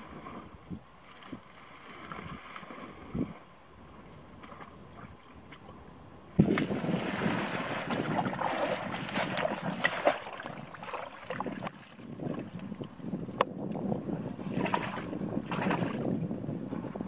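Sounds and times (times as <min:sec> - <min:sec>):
shallow water sloshing: 0:00.0 - 0:03.6, 0:04.3 - 0:12.7, 0:14.3 - 0:16.1
water plants rustling and crackling: 0:06.4 - 0:13.0.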